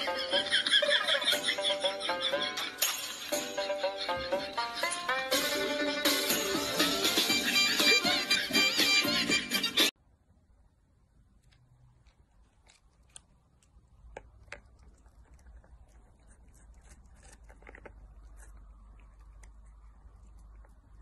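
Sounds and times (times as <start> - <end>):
kitten chewing treat packet: 11.2 - 21.0.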